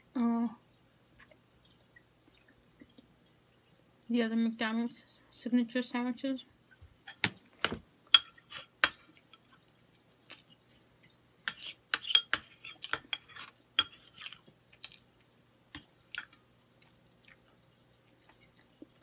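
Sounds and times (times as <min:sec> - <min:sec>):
metal fork clinking on a plate: 0:08.1 - 0:09.0, 0:11.5 - 0:14.2.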